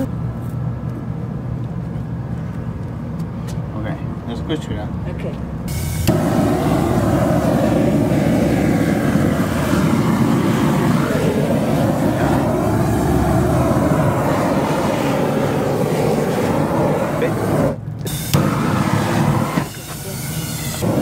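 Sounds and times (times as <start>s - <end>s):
torch flame rushing: 5.7s - 21.0s.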